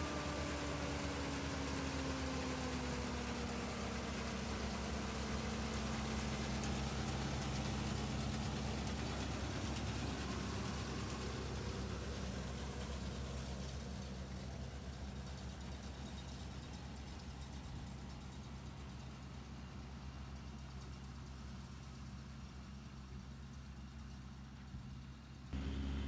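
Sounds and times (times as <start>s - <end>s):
tractor diesel engine running: 0.0s - 23.5s, 25.4s - 26.0s.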